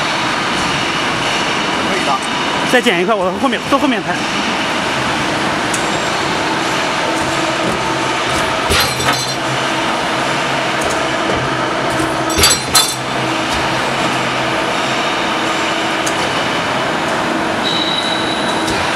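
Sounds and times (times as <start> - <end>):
hydraulic shear humming: 0.0 - 18.9
ringing metallic clanks: 8.7 - 9.5, 12.3 - 13.1.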